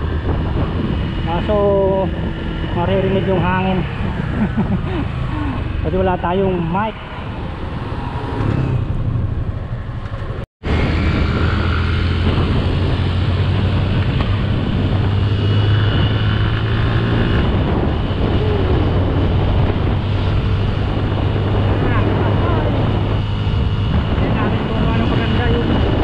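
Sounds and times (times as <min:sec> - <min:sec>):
motorcycle engine humming: 0:00.0 - 0:26.0
wind rush on microphone: 0:00.0 - 0:26.0.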